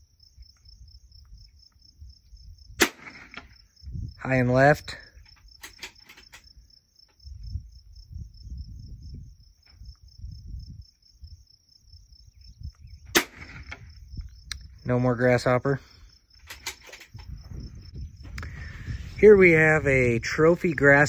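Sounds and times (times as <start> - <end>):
insects chirping: 0.0 - 21.0
rifle shot crack: 2.8 - 3.6, 13.1 - 14.0.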